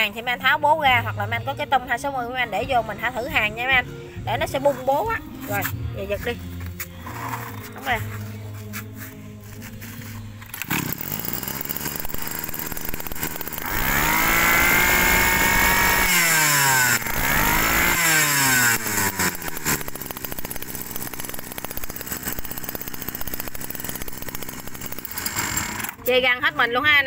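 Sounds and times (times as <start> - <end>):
brush-cutter engine revving: 7.0 - 26.2.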